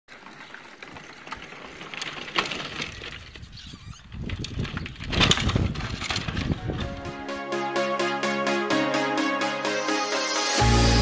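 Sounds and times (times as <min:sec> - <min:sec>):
plastic wheels rattling on bricks: 0:00.1 - 0:07.1.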